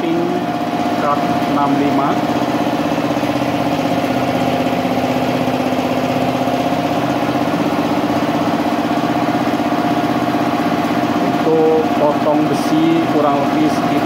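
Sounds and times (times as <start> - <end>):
air compressor running: 0.0 - 14.0.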